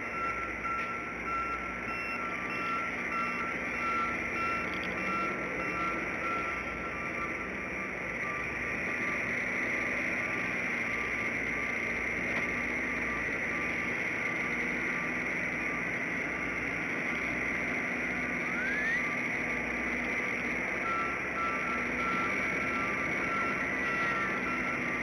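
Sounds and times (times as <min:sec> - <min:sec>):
vehicle reversing beeper: 0:00.0 - 0:25.0
short rising whistle: 0:18.5 - 0:19.2.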